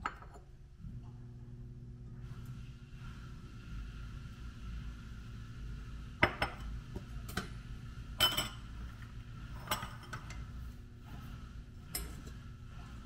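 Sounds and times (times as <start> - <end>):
steady low hum: 0.0 - 13.0
utensils clinking against dishes: 8.2 - 8.6.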